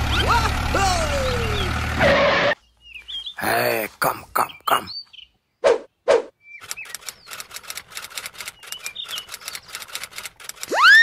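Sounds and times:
high bird chirps: 0:02.6 - 0:03.4, 0:04.4 - 0:10.0
rapid light clicks: 0:06.6 - 0:10.8.

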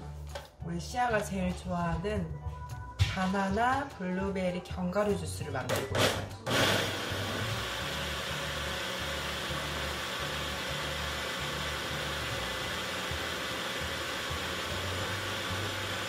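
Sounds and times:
personal blender running: 0:06.0 - 0:16.0.

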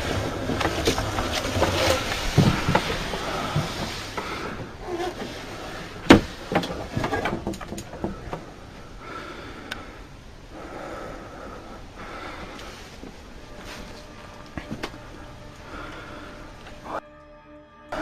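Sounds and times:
faint hiss: 0:00.0 - 0:17.0.

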